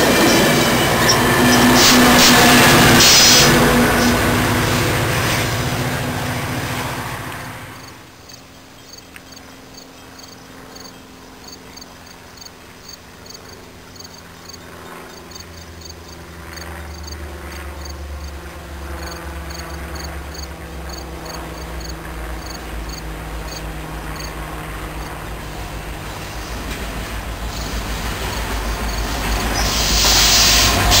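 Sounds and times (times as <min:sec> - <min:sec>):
diesel locomotive rumble: 0:00.0 - 0:31.0
crickets chirping: 0:07.8 - 0:17.2, 0:17.8 - 0:18.4, 0:19.0 - 0:24.4, 0:27.4 - 0:30.6.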